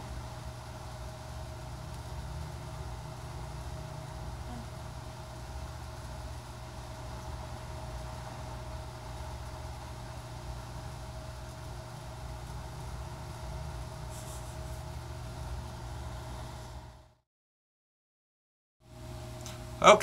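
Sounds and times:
low room hum: 0.0s - 17.2s, 18.8s - 20.0s.

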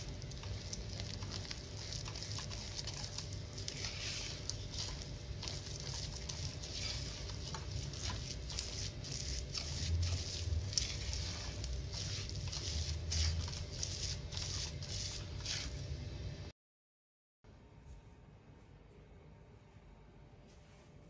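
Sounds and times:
spatula scraping crumbly dough: 0.0s - 16.0s.

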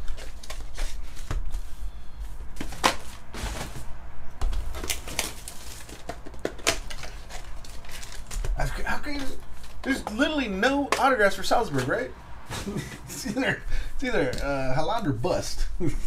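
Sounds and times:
plastic wrap crinkling: 0.0s - 1.4s, 4.5s - 10.4s
hands tapping and rustling box: 2.6s - 11.2s.

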